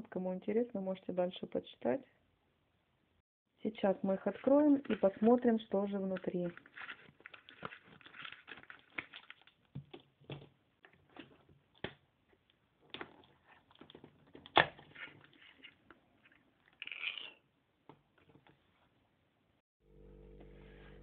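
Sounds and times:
plastic pouch rustling: 4.4s - 9.7s.

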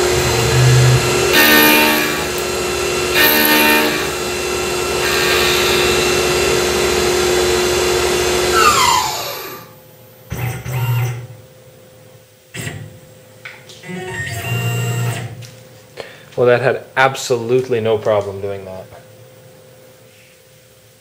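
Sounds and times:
end mill cutting steel: 0.0s - 9.8s
mill spindle whine: 0.0s - 11.4s, 13.8s - 15.6s.

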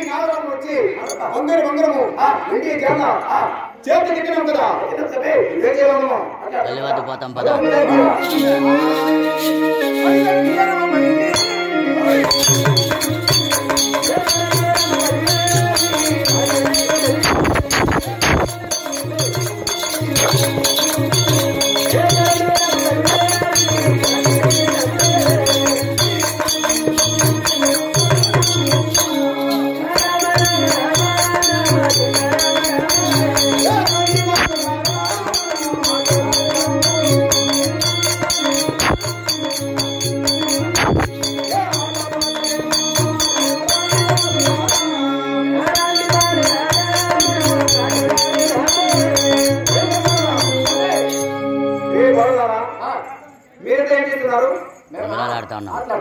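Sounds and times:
wavering melody line: 8.2s - 51.8s
hand drums beating fast rhythm: 12.2s - 45.0s, 45.7s - 51.3s.

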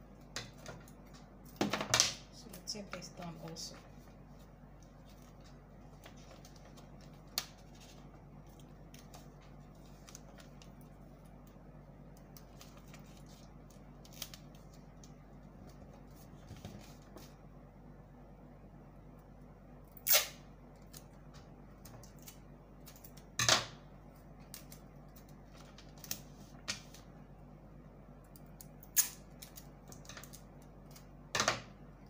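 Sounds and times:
low steady hum: 0.0s - 32.0s
paper and tape rustling: 2.8s - 11.6s, 12.2s - 17.4s.

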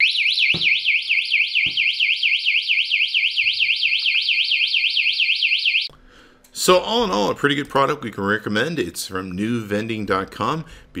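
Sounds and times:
electronic alarm siren warbling: 0.0s - 5.9s.

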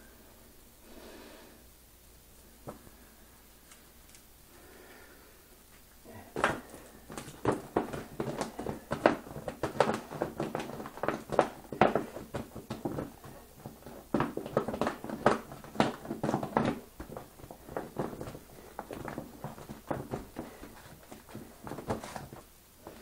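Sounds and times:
gloved hands tapping: 6.3s - 23.0s
paper and plastic rustling: 6.4s - 23.0s.

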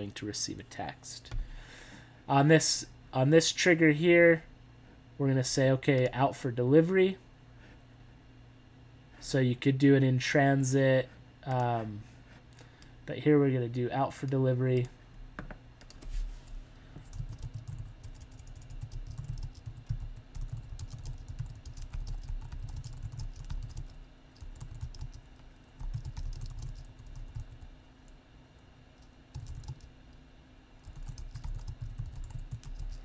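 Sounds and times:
typing on computer keyboard: 17.1s - 27.6s, 29.3s - 29.9s, 30.8s - 33.0s.

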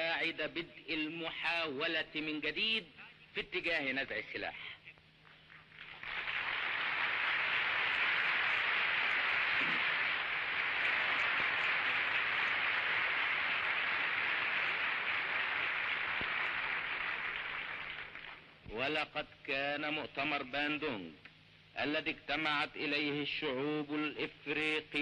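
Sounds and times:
crowd applauding: 5.6s - 18.5s.

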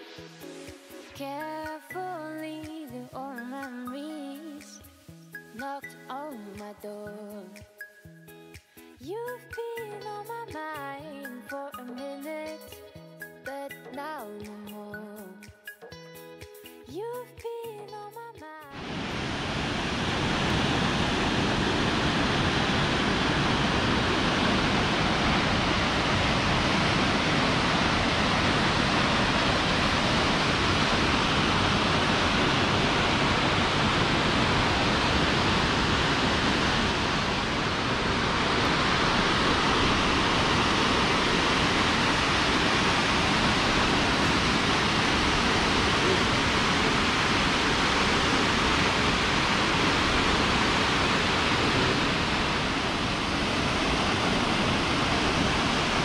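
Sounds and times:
waterfall rushing: 18.8s - 56.0s.

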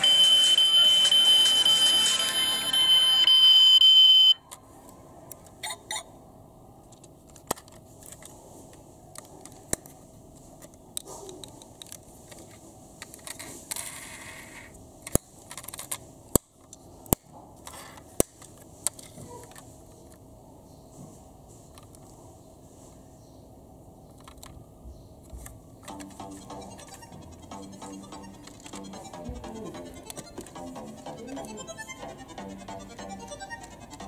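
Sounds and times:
loud electronic tone: 0.0s - 4.4s.

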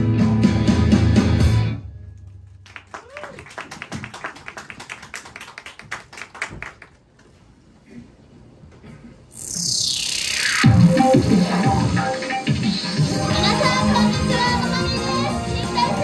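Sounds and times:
scattered claps and taps: 2.2s - 7.0s.

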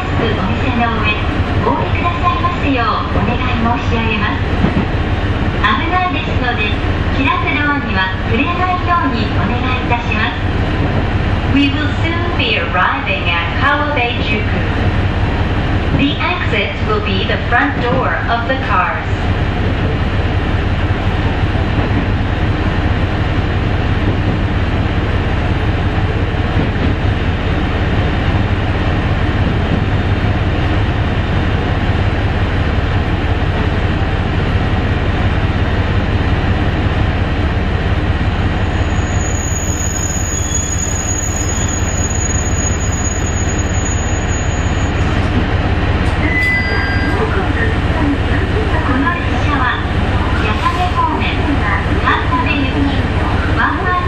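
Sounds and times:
train engine and wheels rumbling: 0.0s - 54.0s
high brake squeal: 38.7s - 45.2s, 46.2s - 47.4s.

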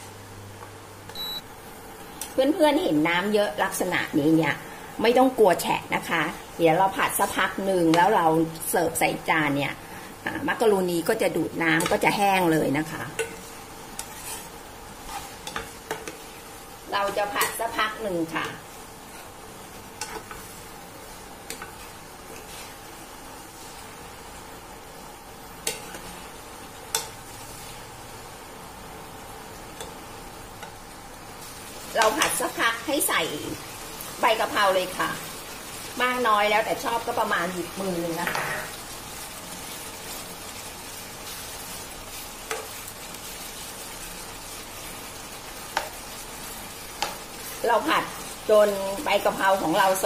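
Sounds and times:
food sizzling in a wok: 0.0s - 50.0s
utensil stirring food: 10.2s - 28.2s, 29.6s - 50.0s.

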